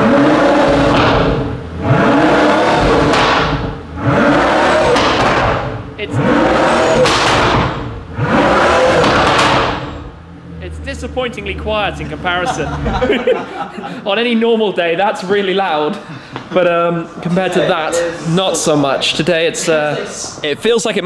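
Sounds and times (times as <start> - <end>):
sports car engine revving: 0.0 - 13.7.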